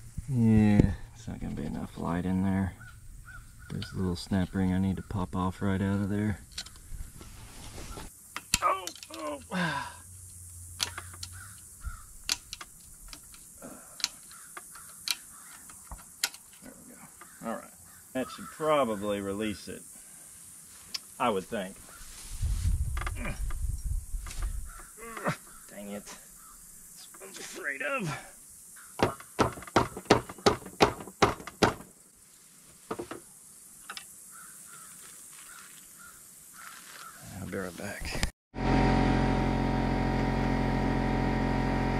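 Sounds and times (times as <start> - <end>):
sharp metallic clicks: 10.8 - 16.6.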